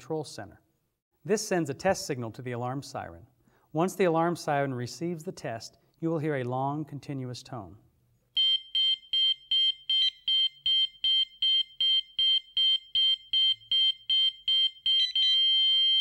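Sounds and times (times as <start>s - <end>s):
alarm siren beeping rapidly: 8.4s - 16.0s
long continuous alarm tone: 8.4s - 16.0s.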